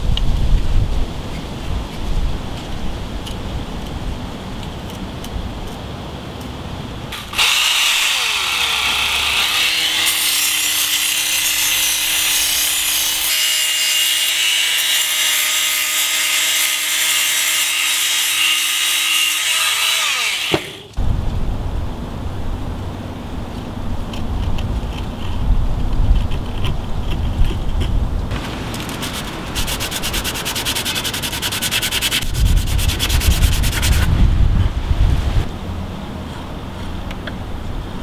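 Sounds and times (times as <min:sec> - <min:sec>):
belt sharpener grinding wood: 0:07.2 - 0:21.0, 0:28.3 - 0:34.0.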